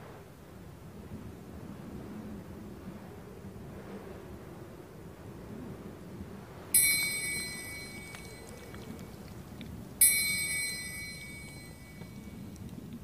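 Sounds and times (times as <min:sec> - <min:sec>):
low steady background noise: 0:00.0 - 0:13.0
bright chime strikes: 0:06.8 - 0:09.2, 0:10.0 - 0:12.6.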